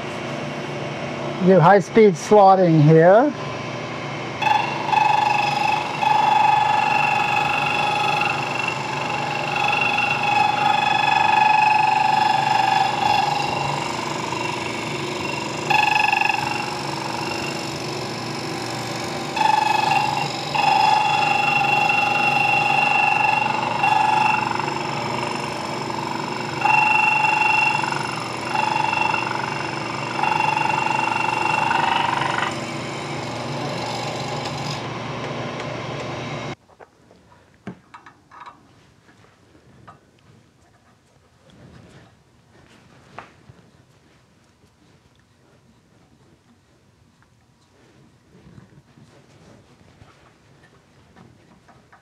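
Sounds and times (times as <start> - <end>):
slitting saw cutting metal whine: 4.4 - 36.6.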